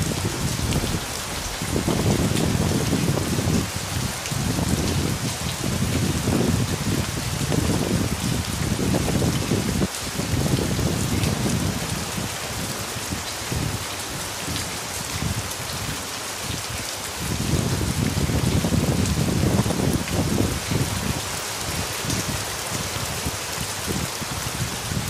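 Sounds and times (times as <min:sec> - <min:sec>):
low rumble: 0:00.0 - 0:03.4
steady rain falling: 0:00.0 - 0:25.0.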